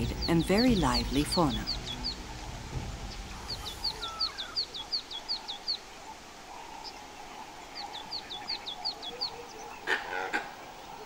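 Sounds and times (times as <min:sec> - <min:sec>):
bird calling high notes: 0:00.0 - 0:02.5, 0:03.1 - 0:05.0
faint forest ambience: 0:00.0 - 0:11.0.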